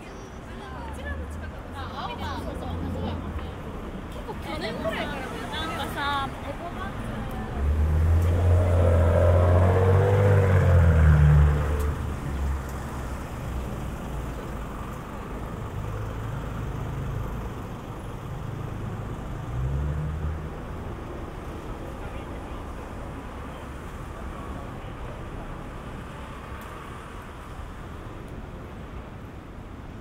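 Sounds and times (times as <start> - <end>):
street noise: 0.0 - 30.0
car passing: 4.9 - 14.3
vehicle passing: 5.0 - 13.3.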